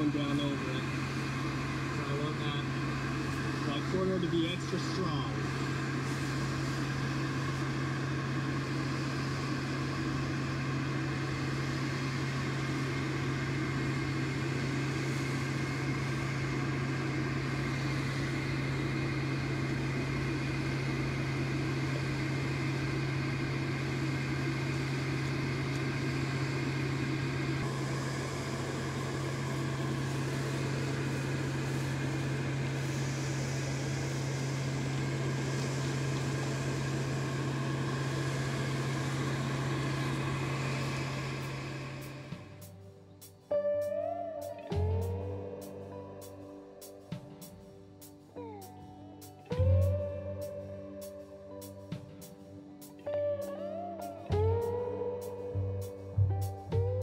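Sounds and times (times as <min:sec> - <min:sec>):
electric motor humming: 0:00.0 - 0:42.8.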